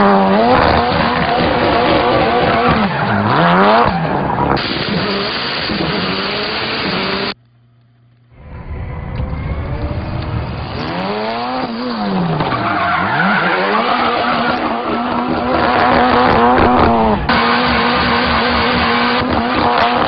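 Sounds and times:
rally car engine revving: 0.0s - 7.4s, 8.6s - 20.0s
tyres squealing: 9.4s - 17.1s.

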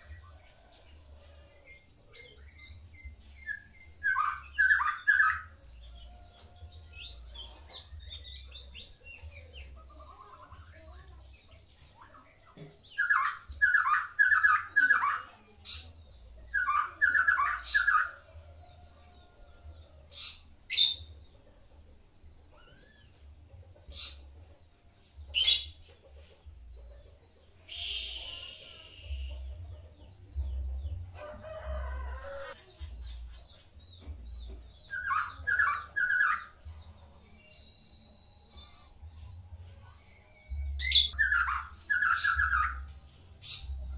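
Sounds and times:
songbird singing whistles: 27.6s - 29.5s, 34.9s - 36.6s, 40.8s - 43.7s
rooster-like crow: 31.2s - 32.6s.

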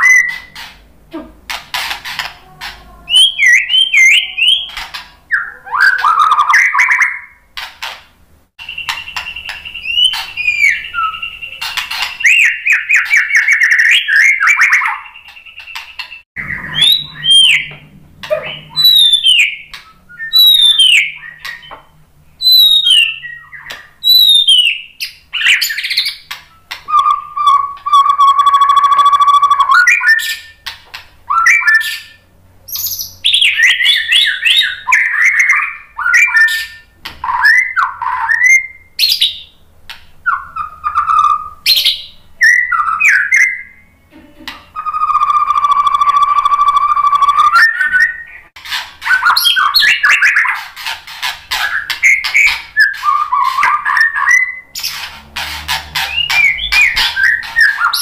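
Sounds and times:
songbird singing varied song: 3.1s - 7.4s, 8.6s - 30.6s, 56.0s - 58.0s.

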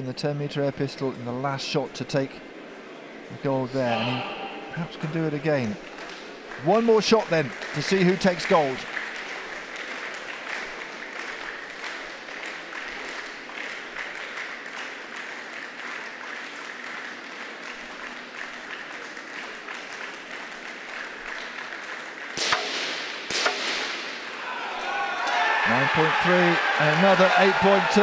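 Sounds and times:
crowd noise: 2.3s - 14.6s, 23.9s - 28.0s
scattered clapping: 5.0s - 28.0s
pistol shot: 22.4s - 24.2s.

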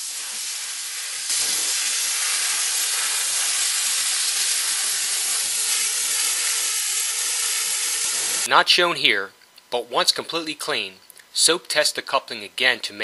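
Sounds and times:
grit blaster hissing: 0.0s - 8.5s.

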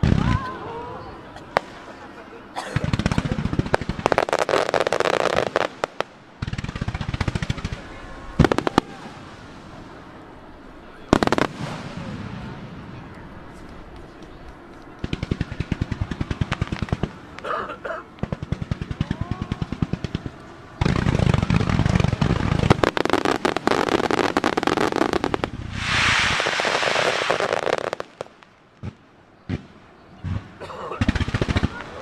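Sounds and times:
steady hiss: 1.3s - 18.9s, 19.5s - 30.6s
firework booms and crackling bursts: 2.6s - 9.7s, 11.1s - 17.4s, 18.2s - 32.0s
firework launch pops: 22.6s - 29.7s.

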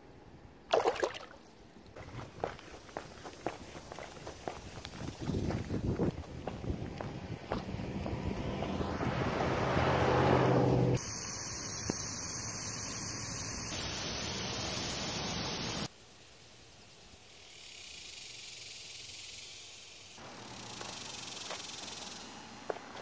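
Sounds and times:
loud static hiss: 11.0s - 17.2s
faint hiss: 11.0s - 22.5s.

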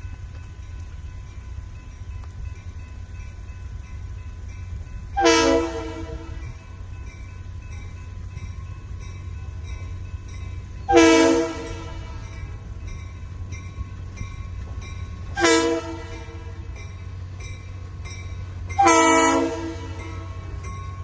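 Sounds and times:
crossing bells ticking: 0.0s - 21.0s
low rumble of train: 0.0s - 21.0s
locomotive air horn blasts: 5.2s - 6.6s, 10.9s - 12.5s, 15.3s - 16.8s, 18.8s - 20.6s.

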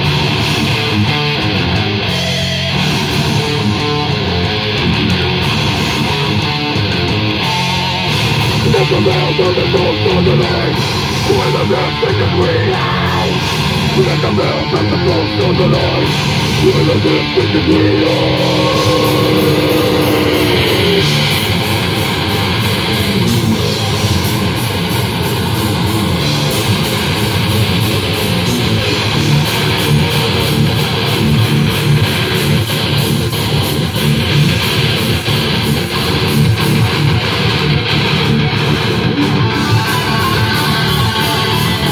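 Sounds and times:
heavy metal band playing: 0.0s - 41.9s
held guitar note ringing: 17.6s - 22.0s.

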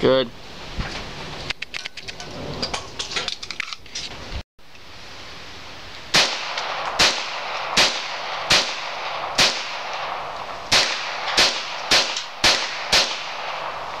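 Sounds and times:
pistol shots with echo: 6.2s - 14.0s.

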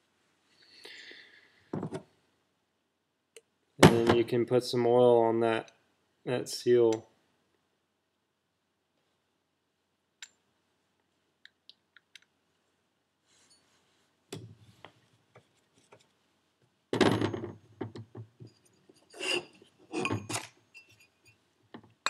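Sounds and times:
metal parts clinking on workbench: 19.3s - 21.1s.

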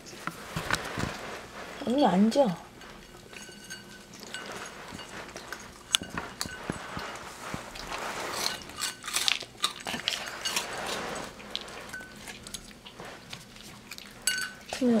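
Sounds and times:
dog crunching treats: 4.1s - 14.8s.

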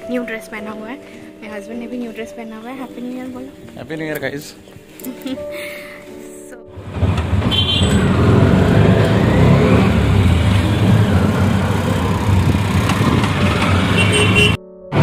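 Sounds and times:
road noise: 6.7s - 15.0s
auto-rickshaw engine rumble: 6.8s - 15.0s.

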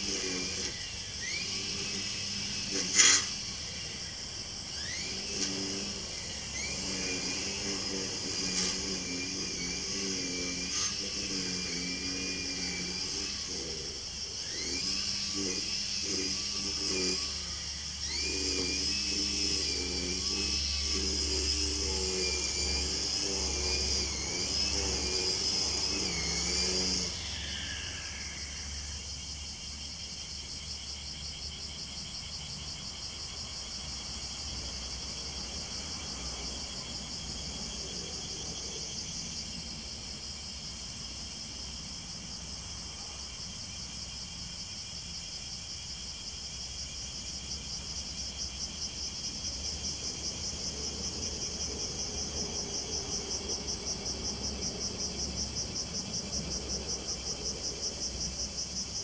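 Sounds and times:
small motor whining: 0.0s - 29.6s
insects pulsing chirp: 0.0s - 59.0s.

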